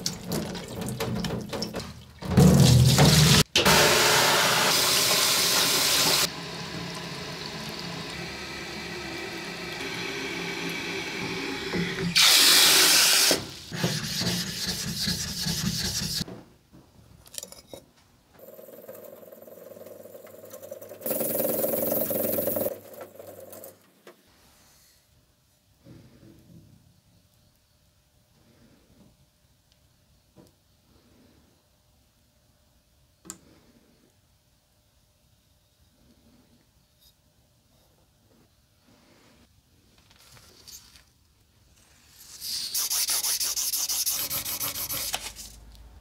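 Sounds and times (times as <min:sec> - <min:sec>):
stone rubbing on whetstone: 0:13.8 - 0:16.2, 0:42.0 - 0:45.6.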